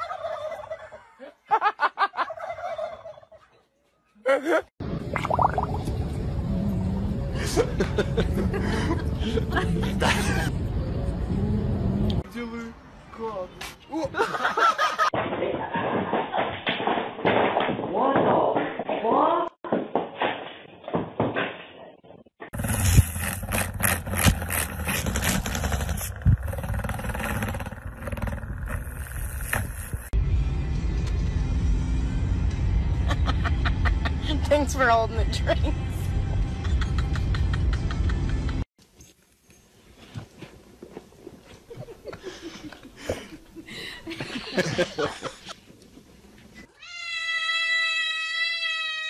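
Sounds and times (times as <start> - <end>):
rustling and scuffing: 38.8 - 42.2.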